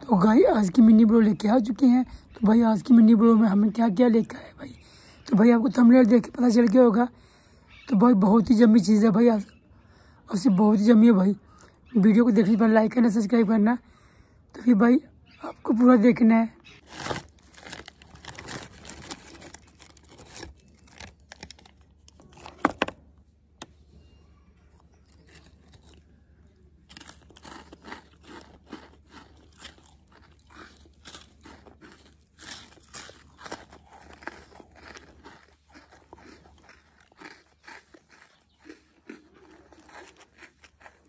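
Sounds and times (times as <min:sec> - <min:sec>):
biscuits crunching: 0:16.7 - 0:23.1, 0:24.6 - 0:41.0.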